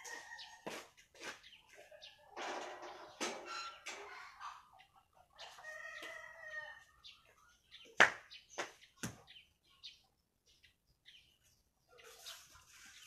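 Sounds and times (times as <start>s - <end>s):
rooster crowing: 0.0s - 0.8s.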